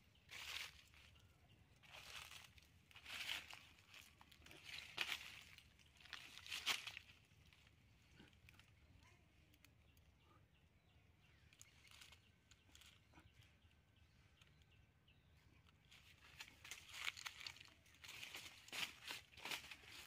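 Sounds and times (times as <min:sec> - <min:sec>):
footsteps crunching dry leaves: 0:00.3 - 0:01.1, 0:01.8 - 0:07.2, 0:16.2 - 0:20.0.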